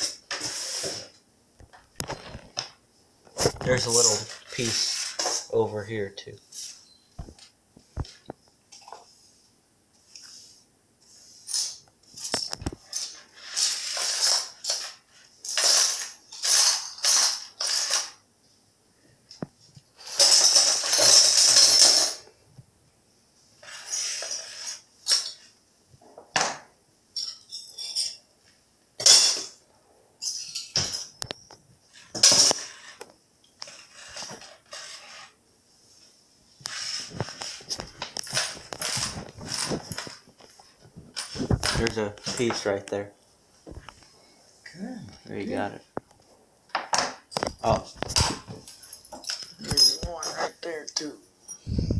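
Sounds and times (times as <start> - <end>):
brush sweeping broken glass: 3.7 - 5.6, 11.1 - 18.2, 23.6 - 25.5, 33.6 - 35.4.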